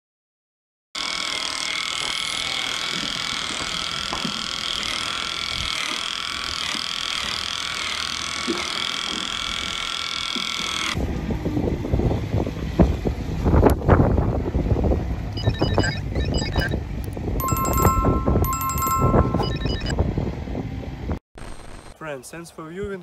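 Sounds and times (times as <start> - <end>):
electric clippers whining: 1.0 - 11.0
wind rumbling on microphone: 11.0 - 21.2.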